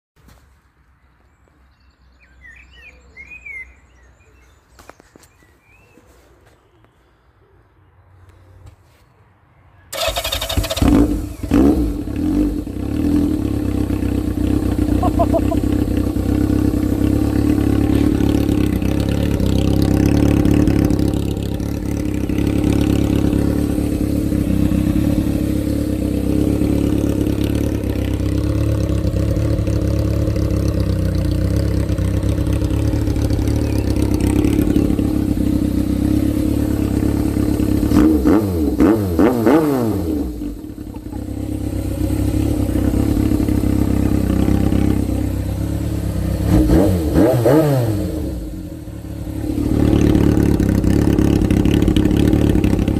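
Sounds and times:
engine throttle blips: 9.9s - 52.9s
motorcycle engine idling: 9.9s - 52.9s.

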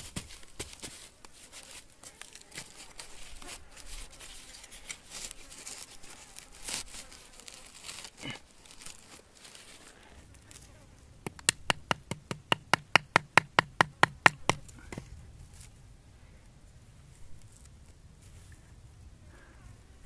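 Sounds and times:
twigs crackling and snapping: 4.5s - 10.6s.

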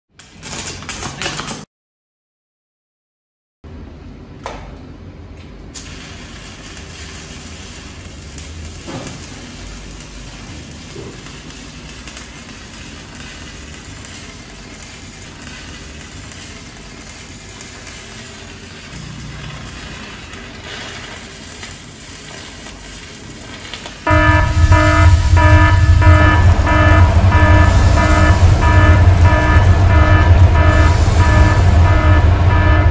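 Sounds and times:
welding arc crackling: 5.7s - 32.9s.

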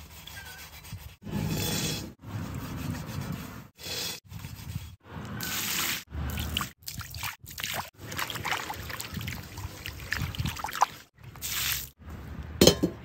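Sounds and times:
water sloshing in a metal pot: 5.7s - 11.4s
water splattering onto gravel: 5.8s - 11.9s.

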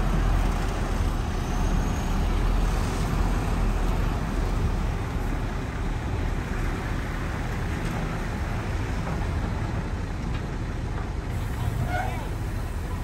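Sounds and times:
diesel engine rumbling: 0.0s - 13.0s
hiss: 11.3s - 13.0s.

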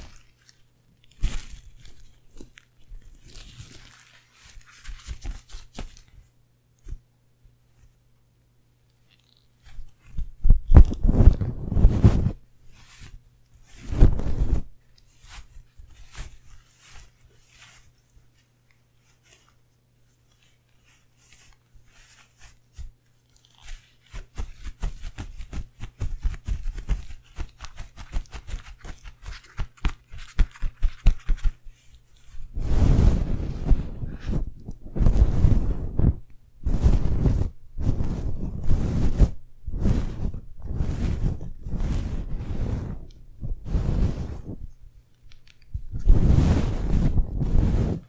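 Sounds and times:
feathers brushing microphone grille: 9.6s - 18.4s, 19.0s - 44.8s, 45.4s - 48.0s.

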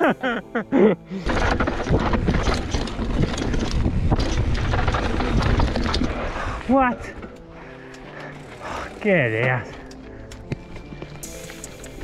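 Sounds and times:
mountain bike rattling on rough trail: 1.1s - 9.8s
wind buffeting microphone: 3.0s - 6.6s.

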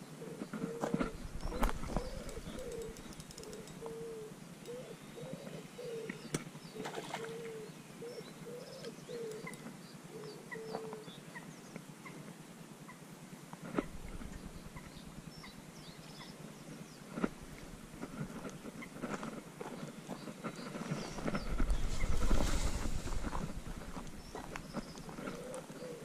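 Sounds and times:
small birds chirping: 0.0s - 13.0s, 13.7s - 26.0s
pigeon cooing: 0.2s - 6.2s, 6.8s - 9.5s, 10.1s - 11.1s, 24.3s - 26.0s
sharp clicks: 1.0s - 3.9s.

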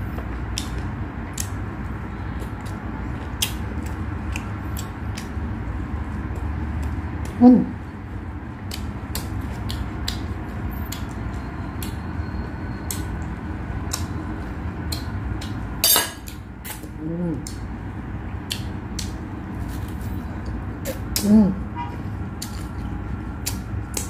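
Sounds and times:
person chewing: 0.0s - 21.3s, 22.0s - 24.0s
low background hum: 0.0s - 24.0s
person humming: 7.3s - 7.8s, 16.9s - 17.6s, 21.1s - 21.7s.

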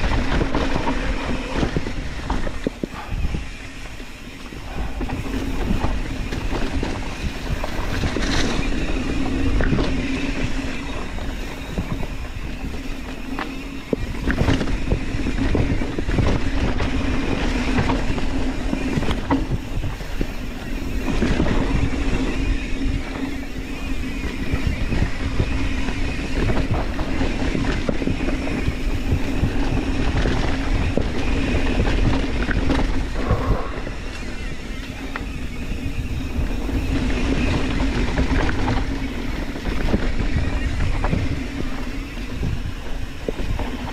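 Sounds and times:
bike knocking and rattling: 0.0s - 43.9s
bike tyres on dirt and leaves: 0.0s - 43.9s
wind on microphone: 0.0s - 43.9s
steady hum: 32.2s - 39.6s.

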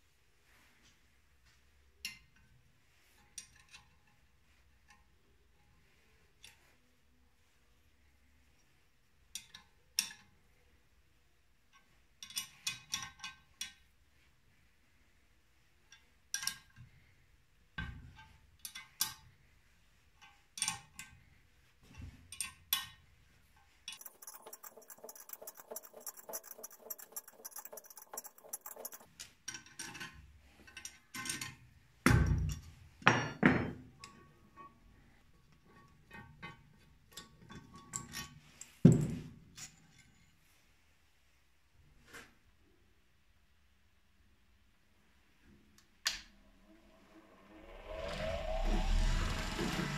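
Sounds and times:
metal tools clinking and knocking: 23.9s - 30.1s.

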